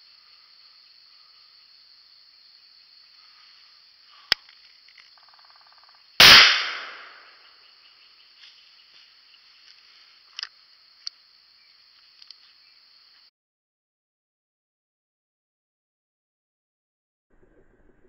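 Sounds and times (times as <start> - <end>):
high insect drone: 0.0 - 6.2, 6.9 - 13.3
shotgun blast: 6.2 - 7.3
small clicks: 12.0 - 12.4.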